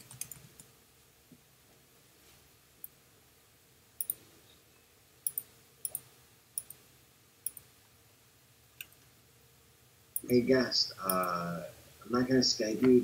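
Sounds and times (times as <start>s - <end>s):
computer mouse clicks: 0.0s - 0.7s, 4.0s - 4.2s, 5.2s - 6.8s, 7.4s - 7.7s, 11.0s - 11.4s.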